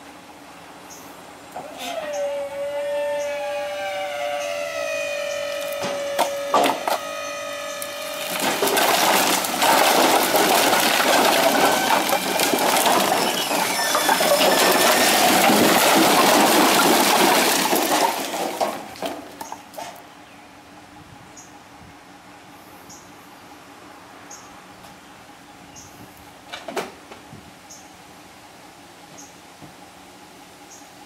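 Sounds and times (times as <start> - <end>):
hydraulic whine: 1.6 - 19.0
sharp knocks: 5.8 - 7.1
firewood clattering onto a pile: 8.2 - 20.0.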